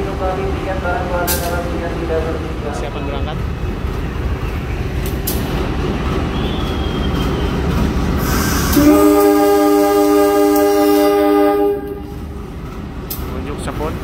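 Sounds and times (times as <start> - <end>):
locomotive engine rumble: 0.0 - 14.0
locomotive horn chord: 8.4 - 12.2.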